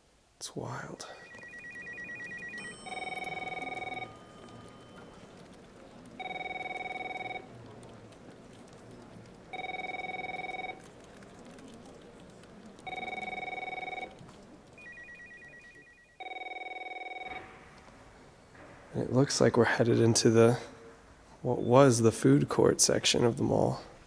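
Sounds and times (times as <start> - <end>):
electronic telephone ringing: 1.0 - 7.6, 9.5 - 10.8, 12.9 - 17.5
fast warbling trill: 1.2 - 5.2.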